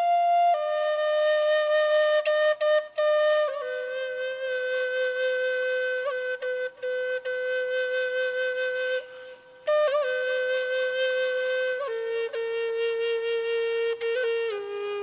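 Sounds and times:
solo flute: 0:00.0 - 0:15.0.

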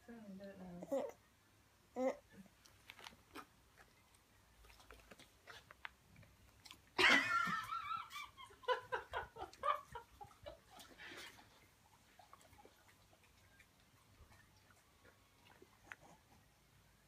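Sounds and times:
person laughing loudly: 0:07.0 - 0:10.4.

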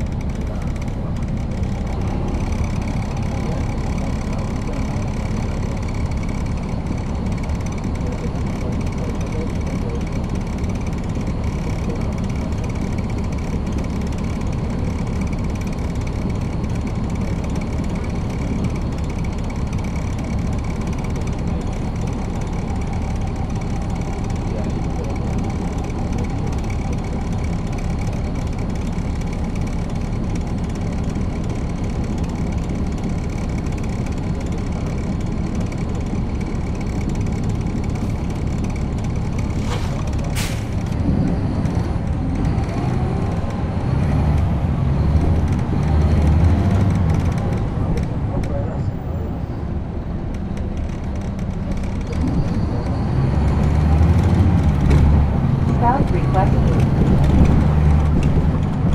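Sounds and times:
bus diesel engine running: 0:00.0 - 0:58.9.

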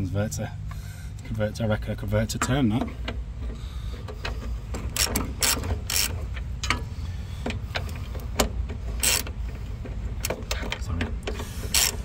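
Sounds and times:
hand ratchet clicking: 0:04.8 - 0:06.8, 0:07.5 - 0:09.4, 0:11.3 - 0:12.0.

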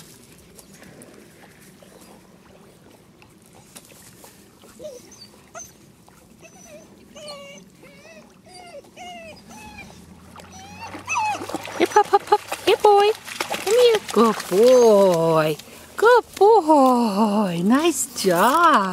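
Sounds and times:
faint water noise: 0:00.0 - 0:18.9
puppy whimpering: 0:04.8 - 0:05.8, 0:06.4 - 0:12.3, 0:14.4 - 0:15.5.

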